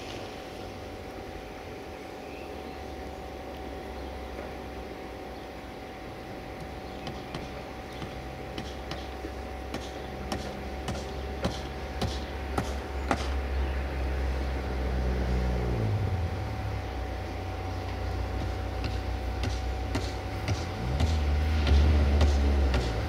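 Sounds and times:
diesel truck engine drone: 0.0s - 23.0s
sharp knocks and clanks: 7.0s - 9.1s, 9.7s - 13.4s, 18.4s - 23.0s.

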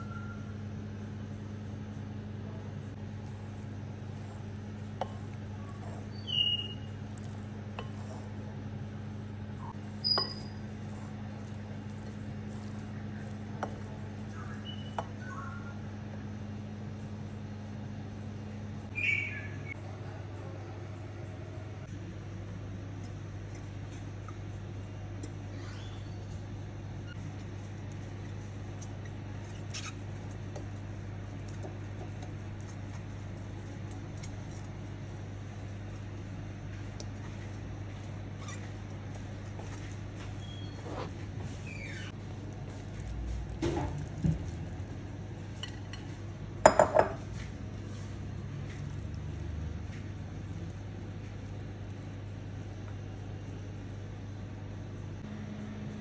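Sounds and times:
steady low hum: 0.0s - 56.0s
pastry brush scuffing on glass: 3.1s - 8.5s, 9.8s - 15.1s, 27.2s - 44.9s
wooden spoon clinking on glass bowl: 46.6s - 47.2s.

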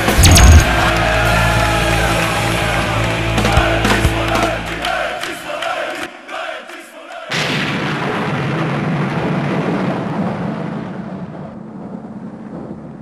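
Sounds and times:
thunder-like rumble: 8.1s - 13.0s.

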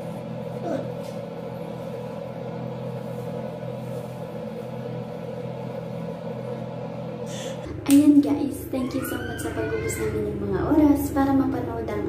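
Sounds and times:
hair dryer running: 7.1s - 10.8s.

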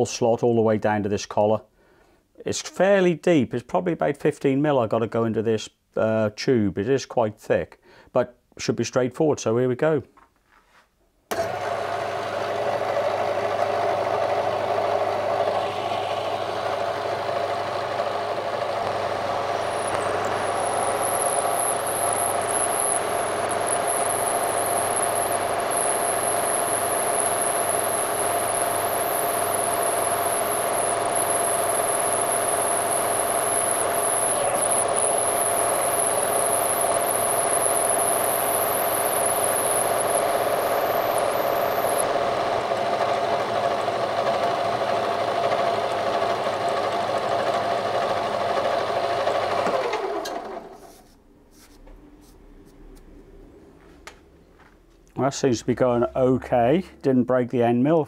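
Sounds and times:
milling machine motor running: 11.3s - 50.5s
end mill cutting aluminium: 18.3s - 42.3s
thin high whine: 18.8s - 42.1s.

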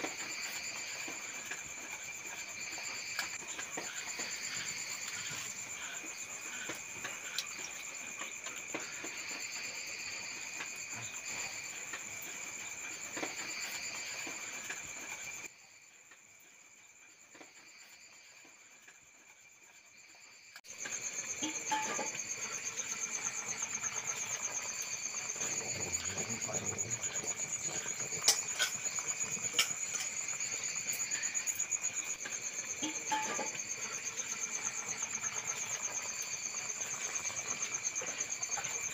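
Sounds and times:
crickets chirping: 0.0s - 38.9s
wood fire crackling: 22.2s - 32.8s.

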